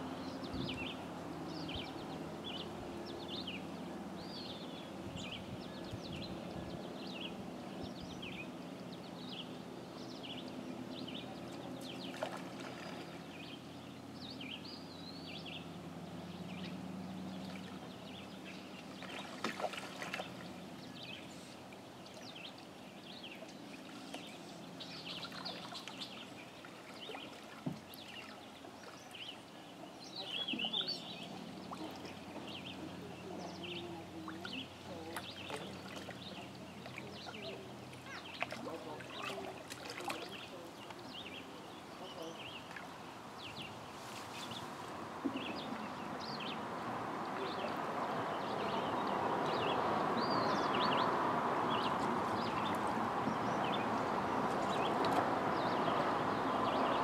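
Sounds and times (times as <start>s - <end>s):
small birds chirping: 0.0s - 57.0s.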